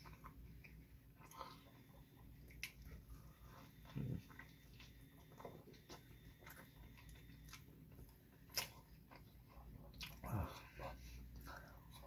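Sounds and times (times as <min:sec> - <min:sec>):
person biting and chewing: 0:08.5 - 0:09.2.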